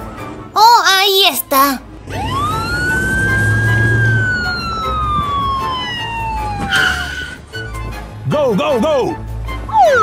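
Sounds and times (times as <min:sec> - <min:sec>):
police siren wail: 0:02.1 - 0:07.4, 0:09.7 - 0:10.0.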